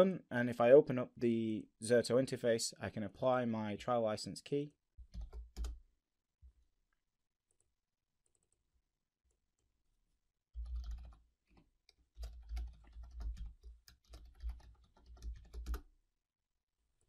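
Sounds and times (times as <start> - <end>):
typing on computer keyboard: 5.0 - 5.8, 10.6 - 15.9.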